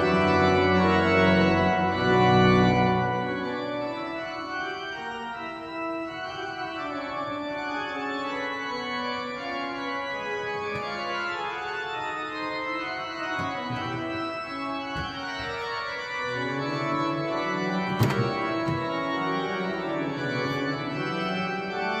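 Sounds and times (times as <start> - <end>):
pipe organ playing chords: 0.0 - 22.0
sharp knock: 18.0 - 18.9.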